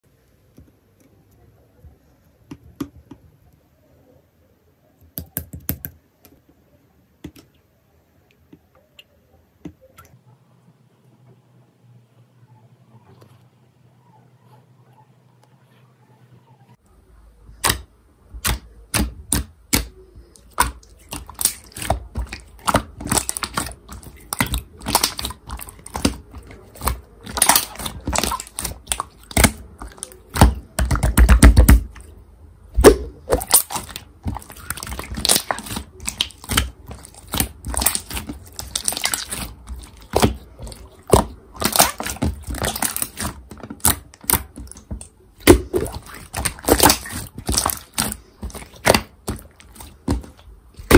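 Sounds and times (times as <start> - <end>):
deep slime squish: 17.5 - 50.9
slime clicking and popping: 17.6 - 32.0, 32.8 - 50.9.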